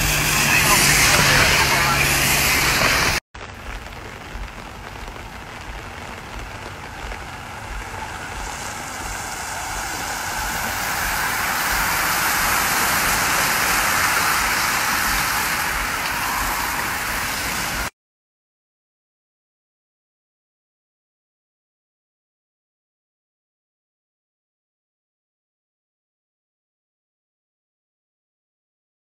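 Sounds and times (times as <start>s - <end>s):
car driving by on wet road: 0.0s - 3.2s, 3.9s - 17.9s
bicycle tyres hissing on wet road: 0.0s - 17.9s
rain on a wet road: 0.0s - 17.9s.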